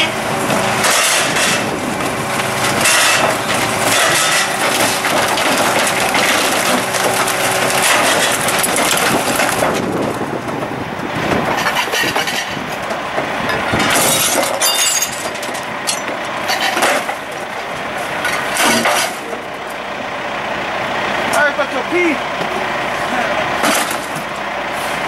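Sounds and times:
garbage truck engine running: 0.0 - 25.0
waste crashing into steel hopper: 0.6 - 10.3, 13.4 - 17.3, 18.2 - 19.4.

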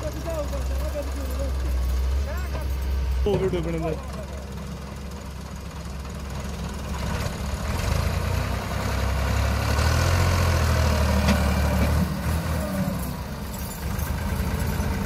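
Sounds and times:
tractor engine revving: 0.0 - 15.0.

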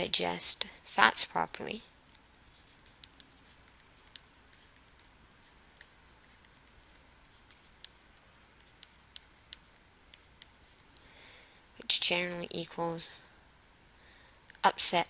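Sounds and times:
stylus tapping on tablet screen: 2.0 - 10.8.

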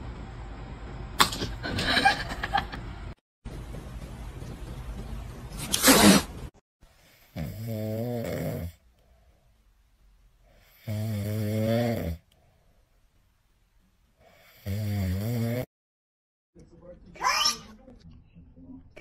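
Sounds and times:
person snoring: 7.2 - 8.8, 10.6 - 12.2, 14.3 - 15.7.

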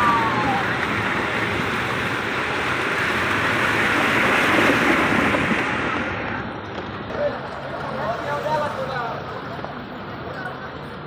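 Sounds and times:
floodwater churning and splashing: 0.0 - 6.6
van driving through water: 0.0 - 11.0.

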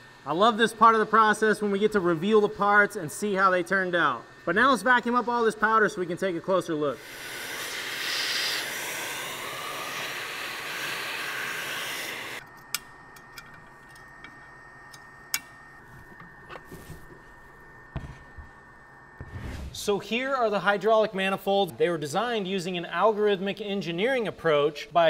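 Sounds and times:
vacuum hose sucking powder: 0.8 - 12.4.

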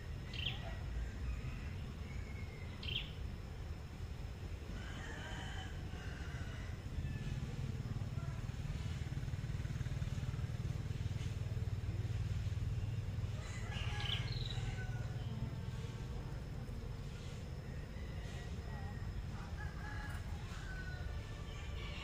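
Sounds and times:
bird chirps: 0.2 - 3.2
small engine running: 6.7 - 22.0.

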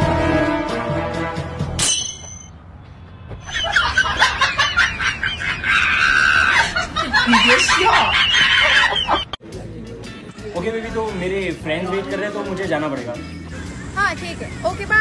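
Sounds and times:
high-pitched laughing and shrieking: 3.4 - 9.3.

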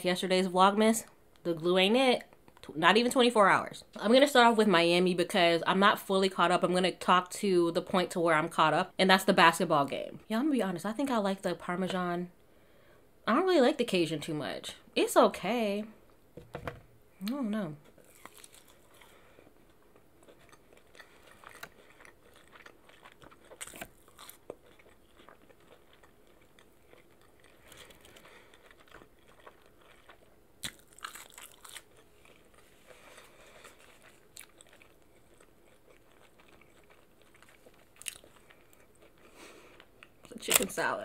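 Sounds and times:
crunching bites: 18.0 - 19.1, 20.2 - 32.6
person chewing chicken wings: 18.0 - 40.2.

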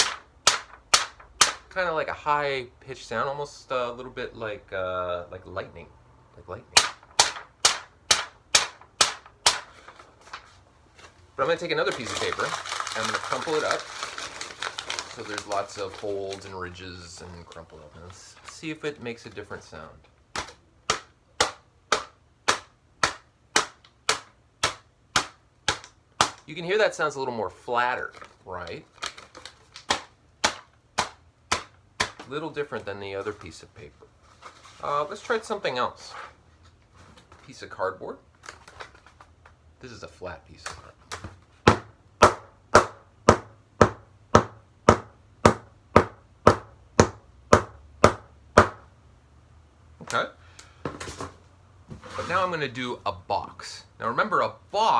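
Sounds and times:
stick striking cardboard: 0.0 - 1.7, 6.8 - 9.8, 20.3 - 26.5, 29.9 - 32.3, 41.1 - 48.9
stick smacking crumpled paper: 6.8 - 19.6, 28.0 - 32.3.

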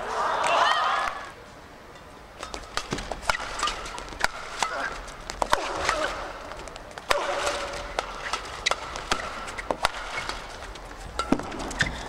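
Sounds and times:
racket striking shuttlecock: 2.4 - 12.0
shoes squeaking on court: 2.4 - 12.0.

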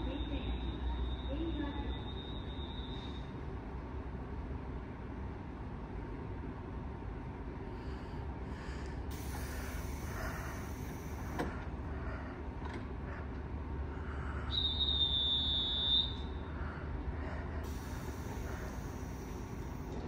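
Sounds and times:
high steady signal tone: 0.0 - 3.3
electric train humming: 0.0 - 20.0.

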